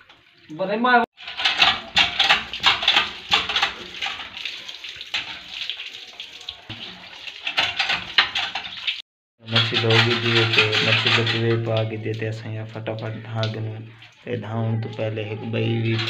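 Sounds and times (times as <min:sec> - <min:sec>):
water splashing on concrete floor: 0:00.0 - 0:14.3
water gushing from a hand pump: 0:01.2 - 0:14.4, 0:15.6 - 0:16.0.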